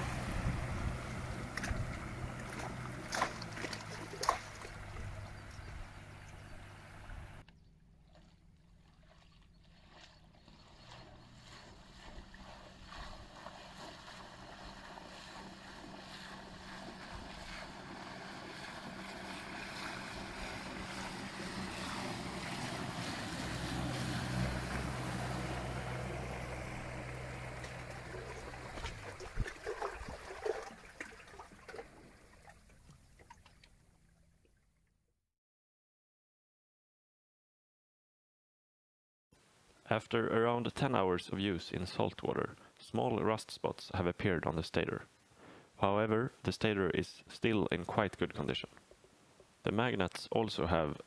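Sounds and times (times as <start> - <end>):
boat hull rushing through water: 0.0 - 34.4
wake splashing on rocks: 1.5 - 4.9.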